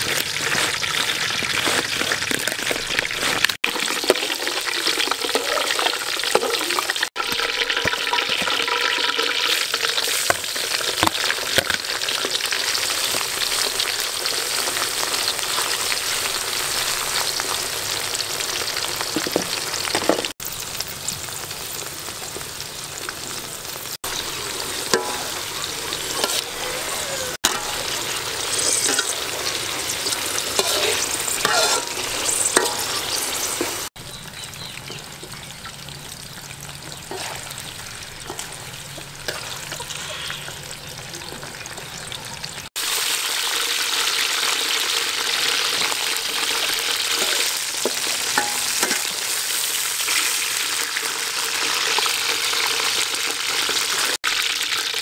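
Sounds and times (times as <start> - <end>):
oil sizzling in a wok: 0.0 - 55.0
metal ladle clinking on wok: 30.5 - 33.0, 47.2 - 49.2.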